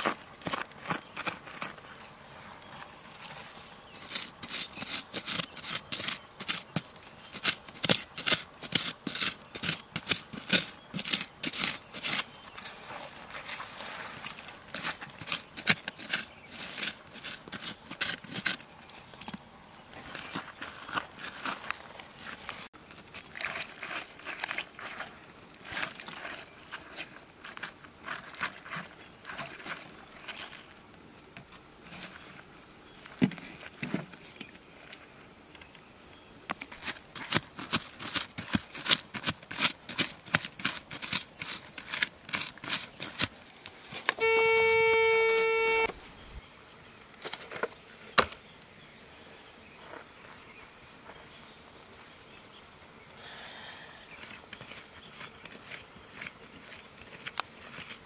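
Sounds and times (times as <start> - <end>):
hand tool digging in soil: 0.0 - 1.9, 2.7 - 34.4, 36.5 - 46.0, 53.3 - 58.0
metal detector tone: 44.2 - 46.0.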